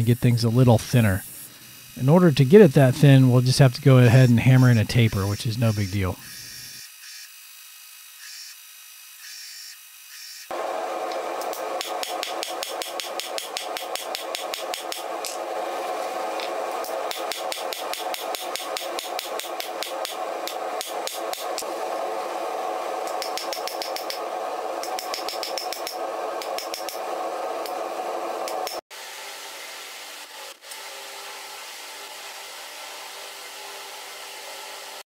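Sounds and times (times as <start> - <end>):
hammer striking hot metal: 11.4 - 15.4, 17.0 - 21.4, 23.1 - 24.2, 24.8 - 27.0.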